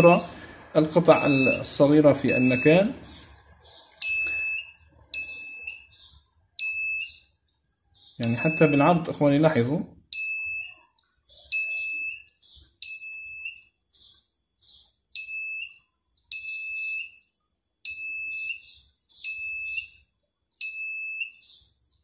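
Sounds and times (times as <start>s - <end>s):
metal detector beeping: 0.0s - 0.3s, 1.0s - 3.0s, 4.0s - 7.3s, 8.2s - 9.1s, 10.1s - 10.8s, 11.5s - 13.8s, 15.2s - 21.6s.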